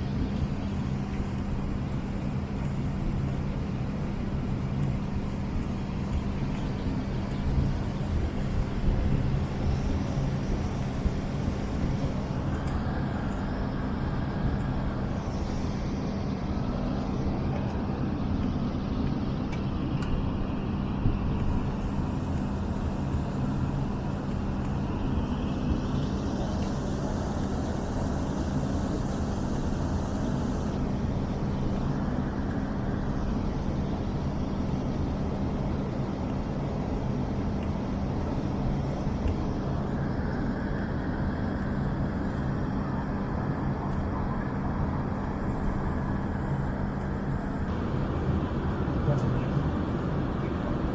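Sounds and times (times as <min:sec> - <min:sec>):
airliner cabin drone: 0:00.0 - 0:50.9.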